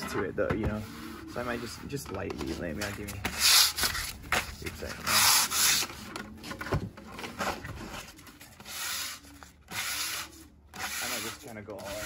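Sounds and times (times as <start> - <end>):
sandpaper rubbing on wood: 3.2 - 4.1, 4.9 - 5.9, 8.6 - 12.0.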